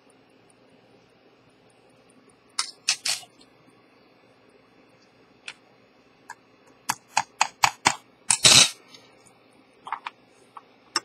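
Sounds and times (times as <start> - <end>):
small sharp clicks and taps: 6.3 - 8.4.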